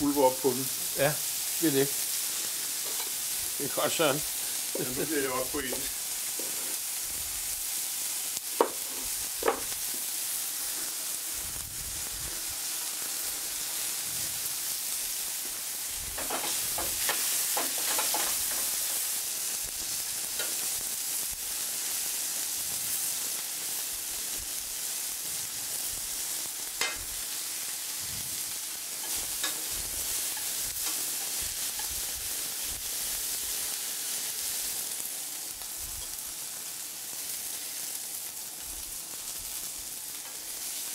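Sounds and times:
fish sizzling in a pan: 0.0s - 40.9s
metal utensils clicking on pan: 2.8s - 3.2s, 16.2s - 19.1s, 20.3s - 20.6s, 26.8s - 27.1s, 29.0s - 32.0s.

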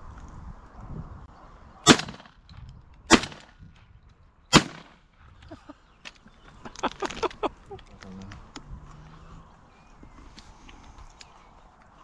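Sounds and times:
shotgun shots: 1.8s - 2.3s, 3.1s - 3.5s, 4.5s - 5.0s.

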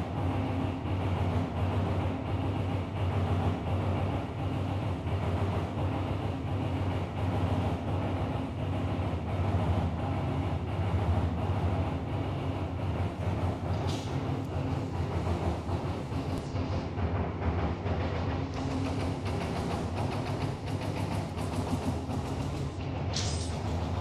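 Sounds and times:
low machine hum: 0.0s - 24.0s
brief high hiss: 23.1s - 23.6s.

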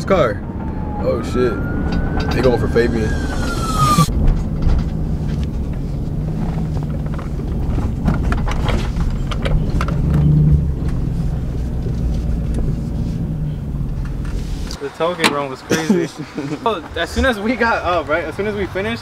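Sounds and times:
car engine hum from cabin: 0.0s - 14.8s.

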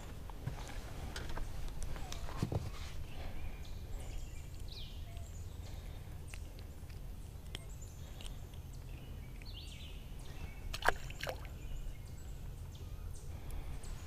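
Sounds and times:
birds calling: 0.0s - 14.0s
low steady rumble: 0.0s - 14.0s.

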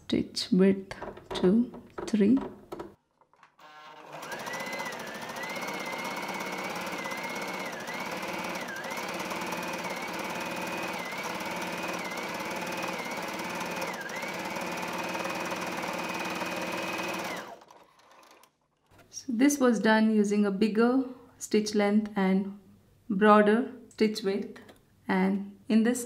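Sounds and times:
sewing machine stitching: 3.2s - 19.0s.

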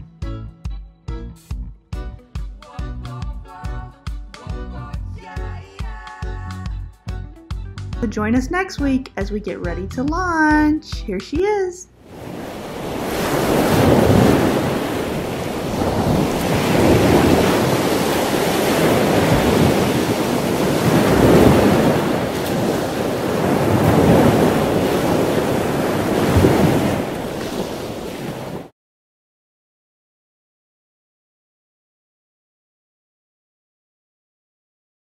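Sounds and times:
ocean surf breaking: 12.0s - 28.7s.

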